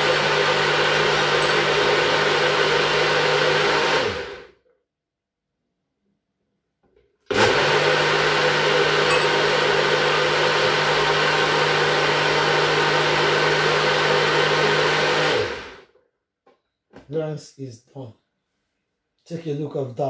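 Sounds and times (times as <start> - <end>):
blender motor running: 0.0 - 4.5, 7.3 - 15.9.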